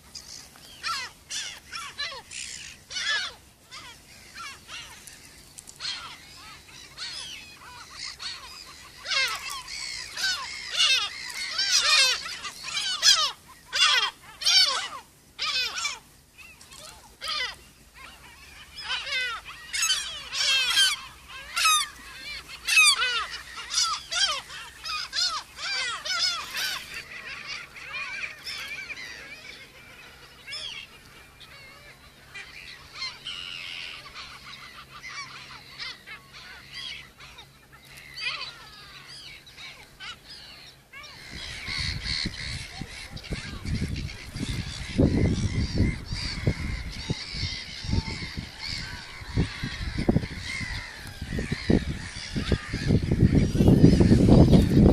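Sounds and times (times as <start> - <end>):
gulls calling: 0.0 - 54.9
wind buffeting microphone: 41.2 - 54.9.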